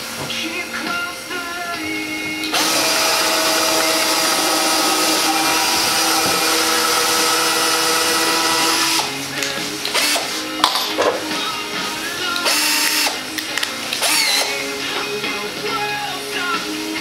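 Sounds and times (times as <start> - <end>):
power drill drilling into wood: 2.5 - 9.1, 9.9 - 10.3, 12.4 - 13.2, 13.9 - 14.6.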